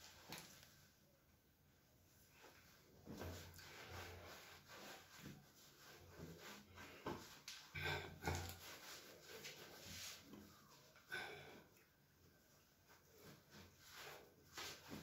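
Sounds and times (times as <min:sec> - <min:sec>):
towel rubbing and scuffing: 0:02.3 - 0:11.0, 0:12.7 - 0:15.0.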